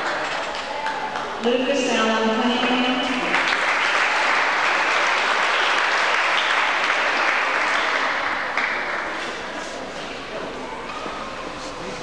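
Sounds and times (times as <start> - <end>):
audience clapping: 0.0 - 1.4, 2.6 - 9.7.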